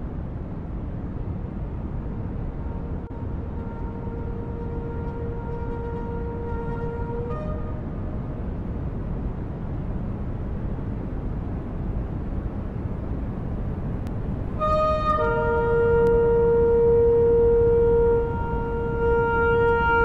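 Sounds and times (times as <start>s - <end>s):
low rushing noise: 0.0s - 20.0s
shofar blast: 2.6s - 8.3s, 14.6s - 20.0s.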